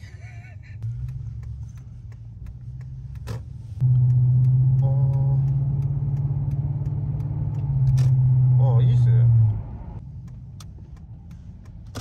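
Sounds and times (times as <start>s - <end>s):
car exhaust drone: 0.2s - 12.0s
faint regular ticking: 0.8s - 7.7s, 10.0s - 12.0s.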